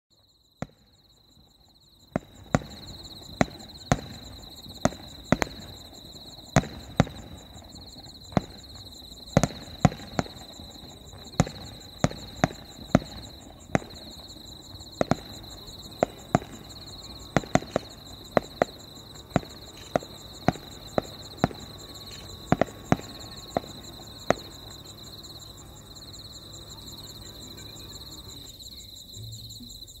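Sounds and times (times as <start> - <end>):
firework shells bursting: 2.1 - 24.9.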